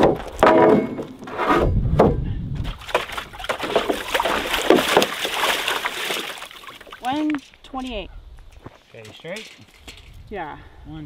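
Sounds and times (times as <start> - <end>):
wooden boards knocking together: 0.0 - 1.3, 2.8 - 5.6
water sloshing as dog wades: 2.8 - 7.2.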